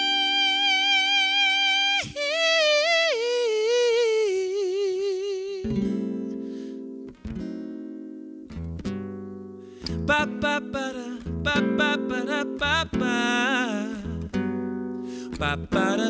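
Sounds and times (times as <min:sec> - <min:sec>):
man singing: 0:00.0 - 0:06.0, 0:09.9 - 0:14.4, 0:15.2 - 0:16.0
acoustic guitar chords strummed: 0:05.6 - 0:16.0.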